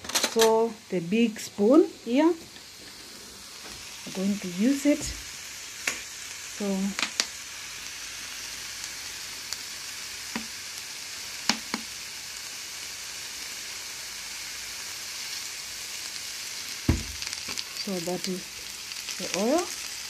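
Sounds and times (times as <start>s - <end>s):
onions sizzling in a frying pan: 0.4s - 20.0s.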